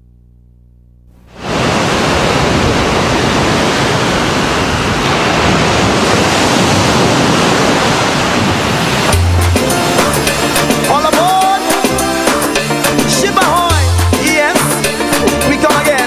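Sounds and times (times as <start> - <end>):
waves breaking on a beach: 1.4 - 14.6.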